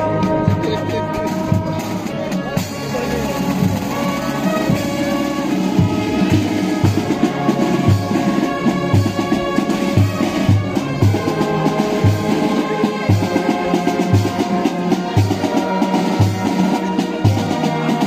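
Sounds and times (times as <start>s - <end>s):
bass drum beating: 0.0s - 9.5s
brass band playing chords: 0.0s - 18.0s.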